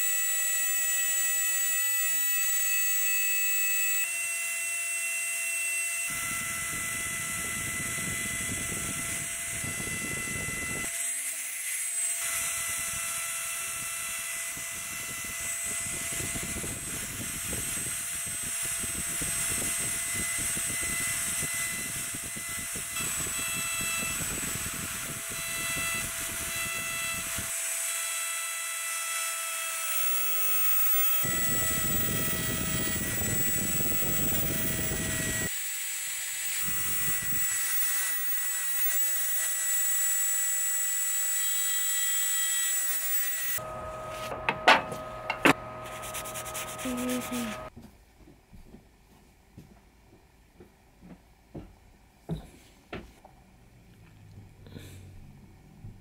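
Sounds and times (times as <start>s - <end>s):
rotary tool motor whining: 0.0s - 47.7s.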